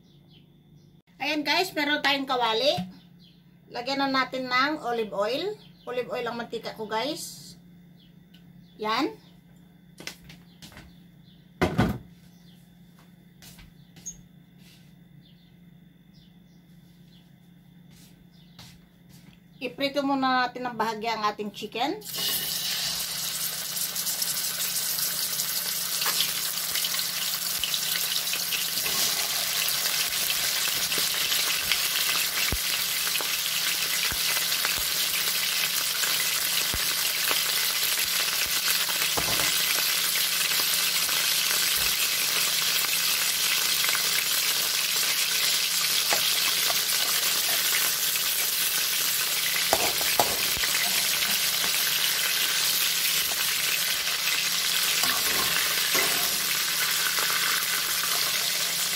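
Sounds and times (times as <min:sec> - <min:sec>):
chicken sizzling in oil: 0:22.0 - 0:58.9.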